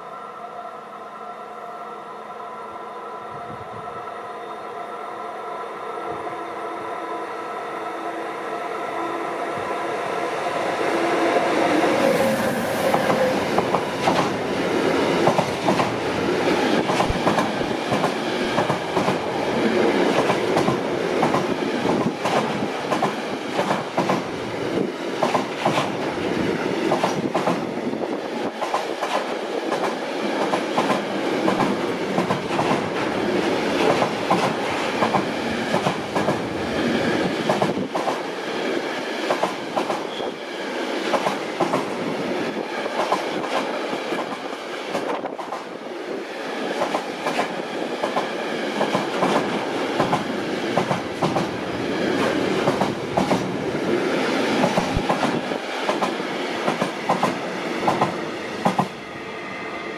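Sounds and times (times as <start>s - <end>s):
freight train rumbling past: 0.0s - 59.9s
train wheels clacking on rail joints: 12.2s - 14.4s, 15.1s - 24.3s, 25.2s - 26.1s, 26.8s - 27.7s, 28.5s - 33.0s, 33.7s - 36.5s, 37.2s - 38.3s, 41.0s - 42.0s, 46.8s - 53.5s, 54.6s - 58.9s.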